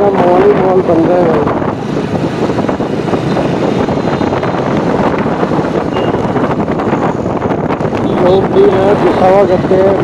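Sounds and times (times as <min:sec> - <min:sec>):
motorcycle engine: 0:00.0 - 0:10.0
road noise: 0:00.0 - 0:10.0
wind over microphone: 0:00.0 - 0:10.0.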